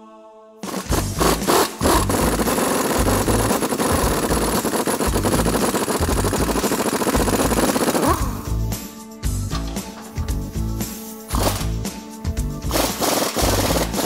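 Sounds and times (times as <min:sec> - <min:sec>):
air impact wrench hammering: 0:00.6 - 0:08.4, 0:11.3 - 0:11.8, 0:12.6 - 0:14.0.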